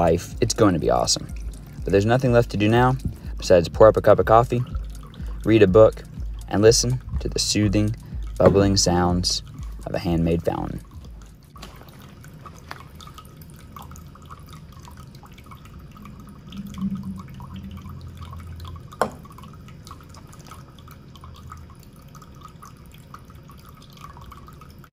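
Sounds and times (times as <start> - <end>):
fountain water trickling: 0.0 - 24.9.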